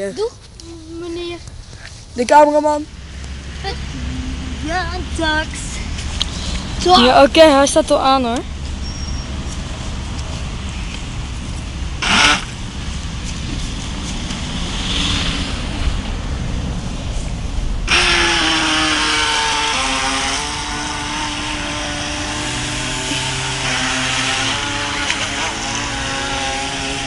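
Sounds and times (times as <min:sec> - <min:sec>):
low rumble: 0:00.5 - 0:23.6
toy boat motors whining: 0:12.0 - 0:12.5, 0:17.9 - 0:27.0
short loud burst: 0:12.0 - 0:12.6, 0:17.9 - 0:21.6.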